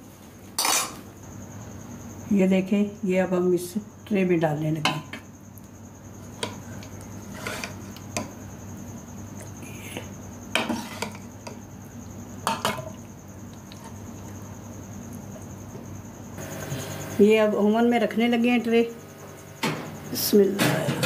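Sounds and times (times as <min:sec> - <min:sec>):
steady low hum: 0:00.0 - 0:21.0
utensils clinking on baking tray: 0:00.6 - 0:01.0.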